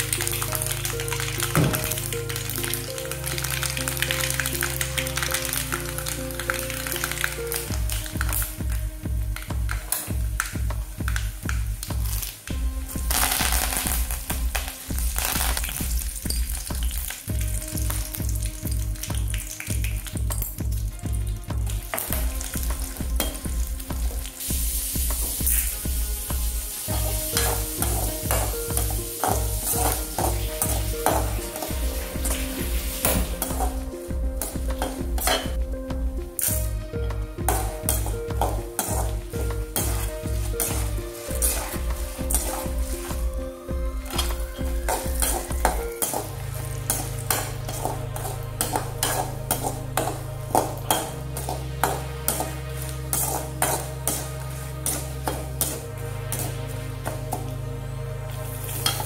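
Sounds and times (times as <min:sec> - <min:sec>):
metal ladle scraping a pan: 0:00.0 - 0:10.4, 0:21.6 - 0:35.6, 0:36.3 - 0:43.4, 0:44.0 - 0:57.6, 0:58.3 - 0:59.0
food sizzling in hot oil: 0:00.0 - 0:20.9, 0:21.6 - 0:35.6, 0:36.2 - 0:57.6, 0:58.3 - 0:59.0
spatula scraping pan: 0:37.4 - 0:43.3, 0:44.1 - 0:57.5.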